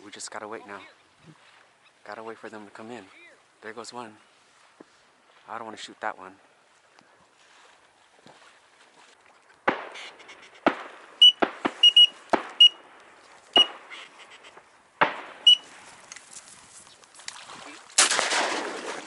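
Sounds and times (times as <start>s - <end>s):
shotgun shots: 9.7s - 12.9s, 15.0s - 15.6s, 18.0s - 19.0s
high whistle-like beeps: 11.2s - 12.8s, 13.6s - 13.8s, 15.5s - 15.7s.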